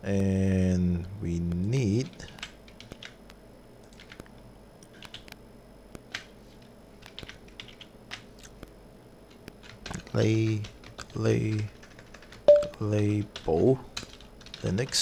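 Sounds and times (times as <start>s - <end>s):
computer keyboard keystrokes: 2.1s - 3.2s, 3.8s - 5.4s, 7.0s - 8.3s, 9.4s - 15.0s.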